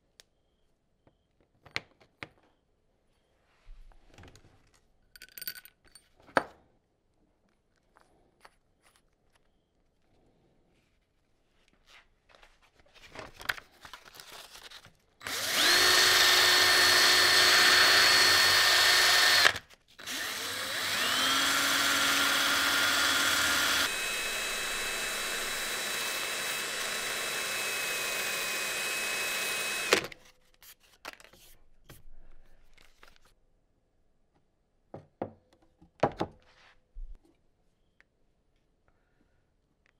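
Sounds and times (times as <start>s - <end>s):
power drill whining: 15.2s - 30.2s.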